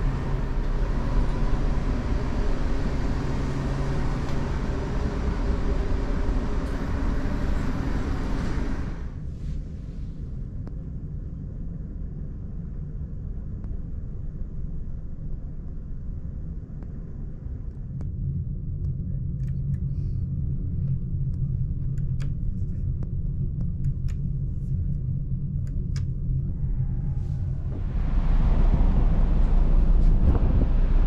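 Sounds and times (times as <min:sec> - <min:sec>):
ferry engine rumble: 0:00.0 - 0:10.0, 0:25.6 - 0:31.0.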